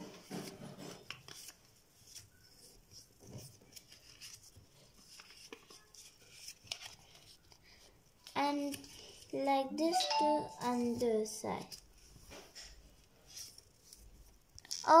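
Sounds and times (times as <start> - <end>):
paper rustling and scraping: 0.0 - 9.3.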